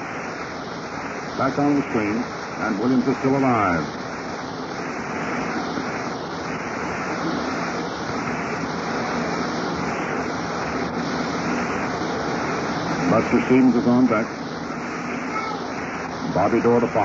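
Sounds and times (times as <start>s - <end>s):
stadium crowd noise over radio: 1.4s - 4.1s, 12.4s - 17.0s.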